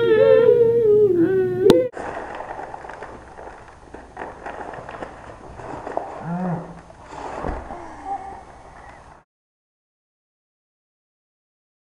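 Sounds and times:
gum pouches crinkling: 0:01.9 - 0:07.3.

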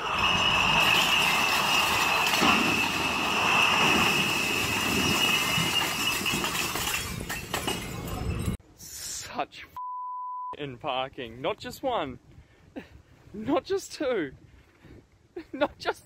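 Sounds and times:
steady high squeal: 0:00.0 - 0:07.1
glass bottles crashing and shattering: 0:00.0 - 0:08.6.

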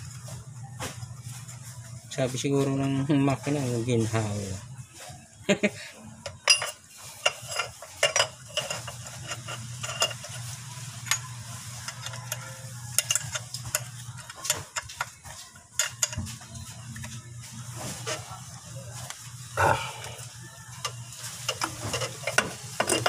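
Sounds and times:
hand tools clinking on metal: 0:06.2 - 0:10.4, 0:11.0 - 0:16.2, 0:20.8 - 0:23.0.

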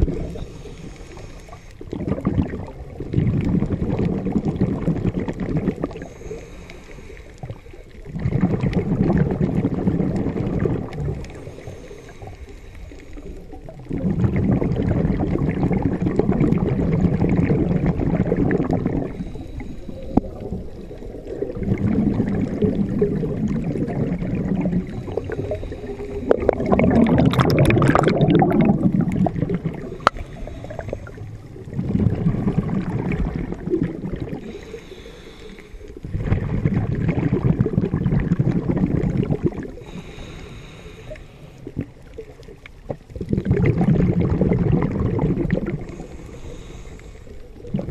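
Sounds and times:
exhaled bubbles gurgling: 0:00.0 - 0:47.9
regulator inhales: 0:00.3 - 0:01.9, 0:06.0 - 0:07.7, 0:11.3 - 0:13.4, 0:19.1 - 0:21.3, 0:24.9 - 0:26.6, 0:29.9 - 0:31.4, 0:34.4 - 0:36.0, 0:39.8 - 0:41.8, 0:45.8 - 0:47.7.

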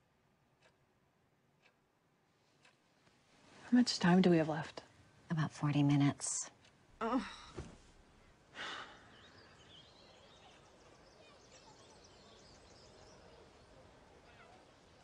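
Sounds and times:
person sighing: 0:07.0 - 0:07.6
faint bird chirps: 0:08.8 - 0:15.0.

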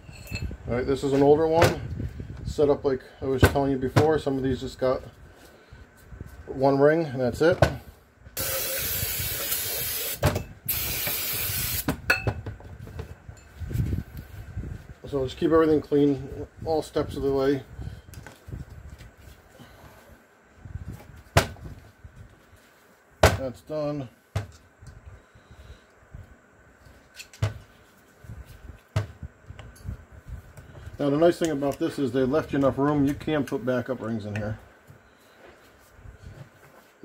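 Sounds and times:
aerosol spray hissing: 0:08.4 - 0:11.9.

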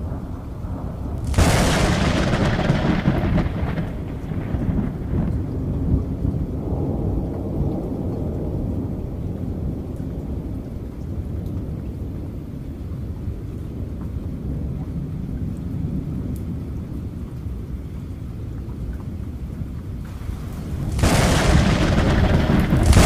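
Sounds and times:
distant thunder: 0:00.0 - 0:08.6, 0:20.1 - 0:23.0
rain rumble: 0:00.0 - 0:23.0.

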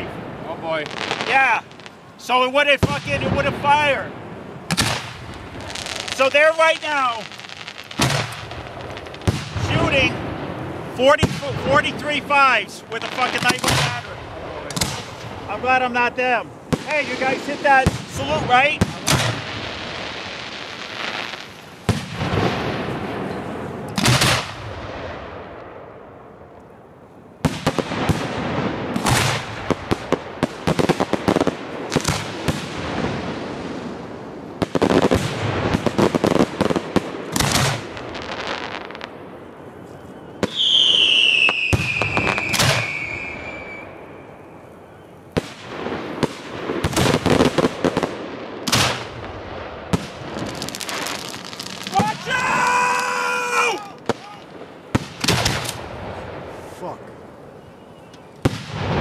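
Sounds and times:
firework crackle: 0:00.0 - 0:26.0, 0:27.4 - 0:59.0
firework shells booming: 0:00.0 - 0:26.3, 0:27.4 - 0:44.6, 0:45.3 - 0:57.1, 0:58.2 - 0:59.0
high descending whistle: 0:40.0 - 0:44.3.

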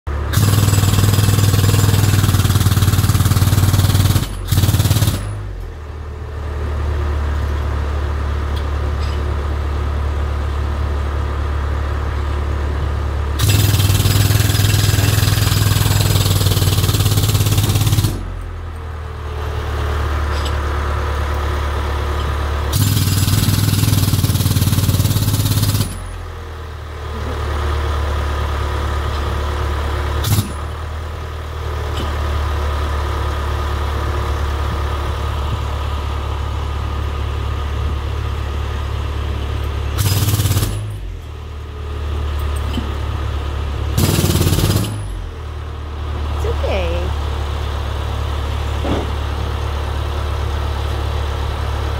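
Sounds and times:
engine droning: 0:00.1 - 0:51.9
jackhammer hammering: 0:00.3 - 0:05.7, 0:13.4 - 0:18.6, 0:22.6 - 0:26.2, 0:30.2 - 0:30.8, 0:40.0 - 0:41.2, 0:43.9 - 0:45.3.

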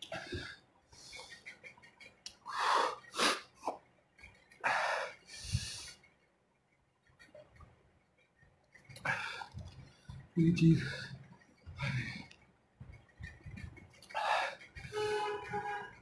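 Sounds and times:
man breathing hard: 0:02.5 - 0:03.6, 0:04.6 - 0:06.0, 0:14.0 - 0:14.8.

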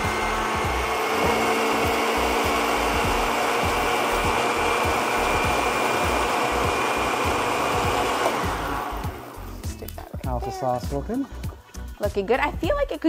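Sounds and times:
blender running: 0:00.0 - 0:09.6.

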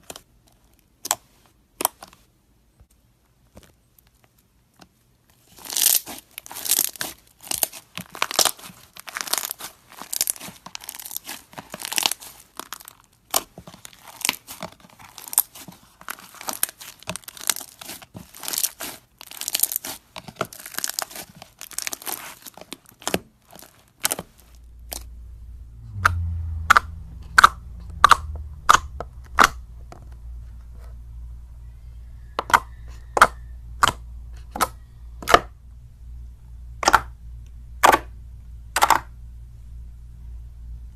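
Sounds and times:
low steady hum: 0:00.0 - 0:40.9
crunchy slime crackling: 0:05.3 - 0:31.4
slime popping: 0:05.6 - 0:25.1, 0:26.0 - 0:30.2.

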